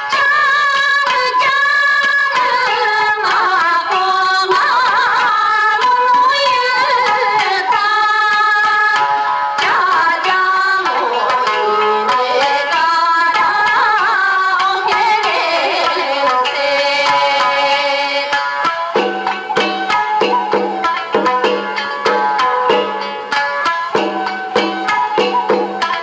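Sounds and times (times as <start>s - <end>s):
background music with percussion: 0.0s - 26.0s
voice-like melody: 10.8s - 12.5s.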